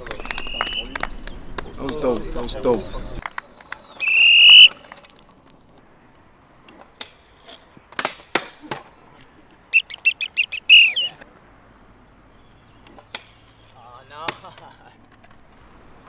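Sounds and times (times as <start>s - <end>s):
whistle blasts: 0.0s - 1.1s, 3.2s - 4.7s, 9.7s - 11.2s
scooter hitting concrete: 7.9s - 8.9s.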